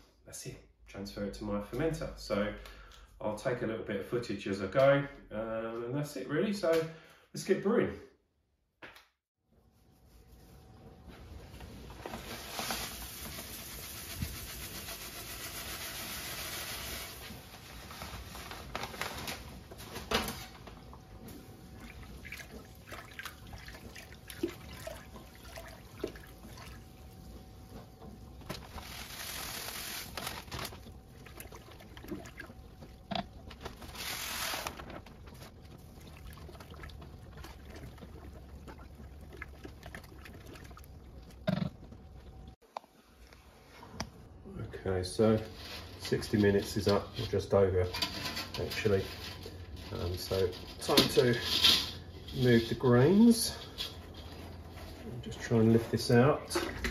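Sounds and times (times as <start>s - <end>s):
paddle stirring mash: 20.6s - 42.8s
small splashes: 21.8s - 27.1s, 31.0s - 33.1s, 35.6s - 41.4s
grain pouring into water: 28.8s - 30.5s.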